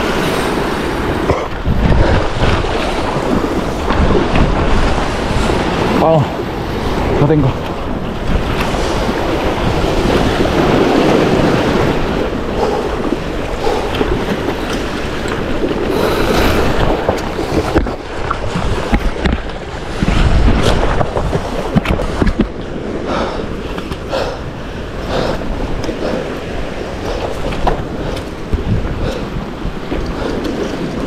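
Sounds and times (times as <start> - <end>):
sea waves washing: 0.0 - 31.0
wind buffeting microphone: 0.0 - 31.0.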